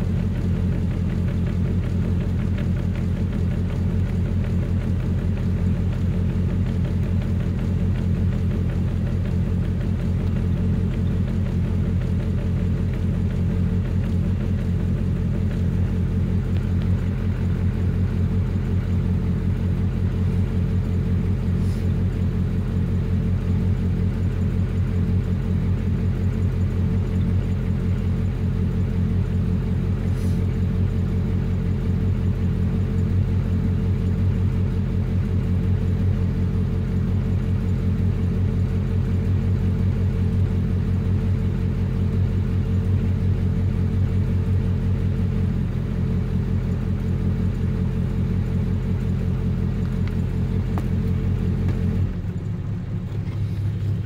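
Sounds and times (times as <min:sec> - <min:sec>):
pickup engine idling: 0:00.0 - 0:54.0.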